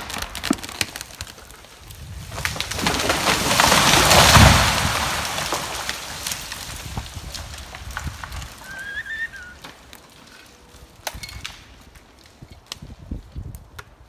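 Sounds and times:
falling tree rumble: 0:00.0 - 0:12.2
twigs and branches cracking: 0:00.0 - 0:14.0
wavering bird call: 0:08.6 - 0:09.6.

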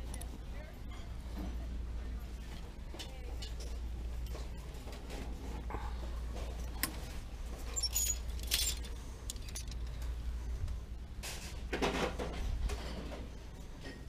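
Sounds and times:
metal hangers clinking on a rack: 0:07.6 - 0:10.0.

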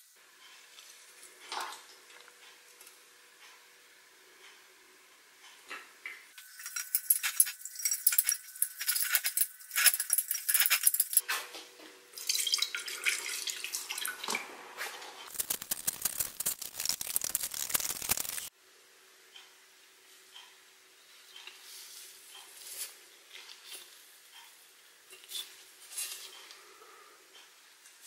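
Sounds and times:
metal clinking and rattling: 0:06.4 - 0:11.2, 0:15.3 - 0:18.5
liquid pouring from a jug: 0:12.2 - 0:14.3.

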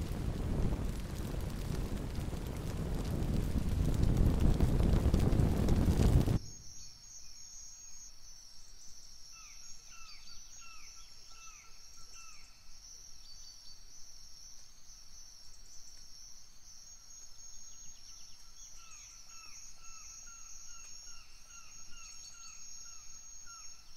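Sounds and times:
high-pitched insect chorus: 0:06.3 - 0:23.9.

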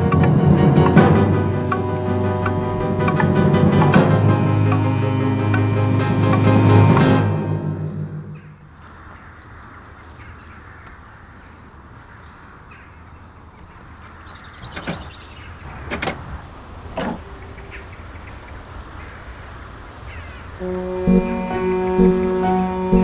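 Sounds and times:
lawn mower engine running: 0:00.0 - 0:07.4.

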